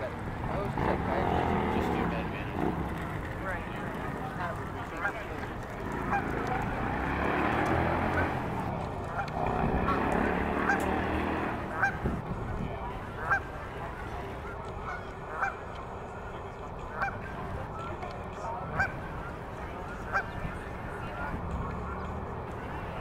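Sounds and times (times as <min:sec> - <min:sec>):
geese honking: 0:04.9 - 0:08.4, 0:09.0 - 0:12.1, 0:13.1 - 0:15.8, 0:16.8 - 0:17.5, 0:18.7 - 0:22.9.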